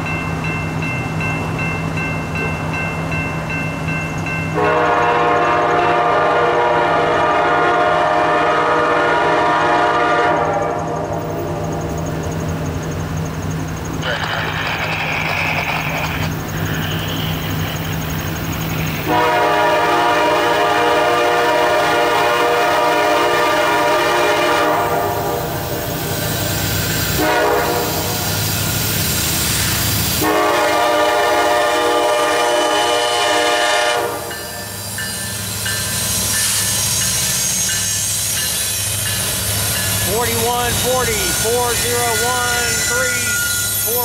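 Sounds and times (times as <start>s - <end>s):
train wheel noise: 0.0s - 44.0s
locomotive air horn blasts: 4.6s - 11.0s, 19.0s - 25.5s, 27.1s - 28.2s, 30.2s - 34.3s, 40.0s - 44.0s
diesel engine rumble: 11.4s - 19.1s, 39.5s - 44.0s.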